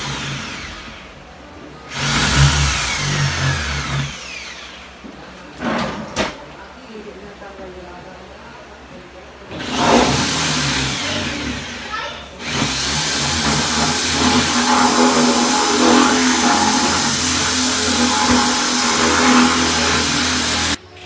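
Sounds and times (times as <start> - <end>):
electric drill boring wood: 0.0 - 1.2, 1.9 - 5.0, 9.5 - 20.8.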